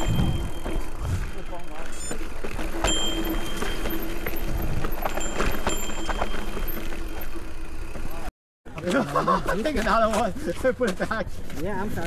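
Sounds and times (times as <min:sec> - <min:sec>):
chain and frame rattling: 0:00.0 - 0:01.0, 0:01.7 - 0:08.1
bike tyres on dirt trail: 0:00.0 - 0:08.3
thin steady whine: 0:00.0 - 0:08.3.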